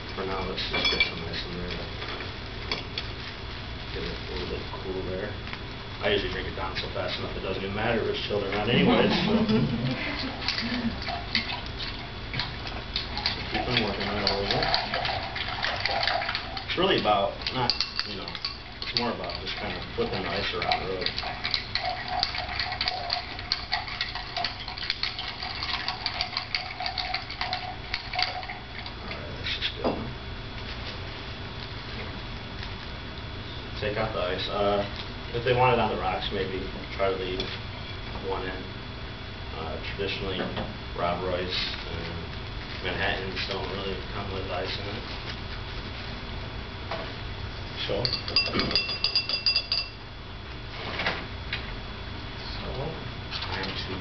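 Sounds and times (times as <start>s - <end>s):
spoon clinking against glass: 48.0s - 50.0s.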